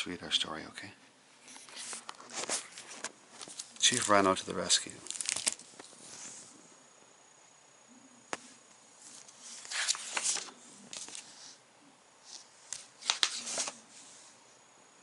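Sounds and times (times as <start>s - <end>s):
book pages rustling and turning: 1.5s - 4.4s, 5.0s - 6.4s, 9.0s - 11.6s, 12.2s - 13.8s.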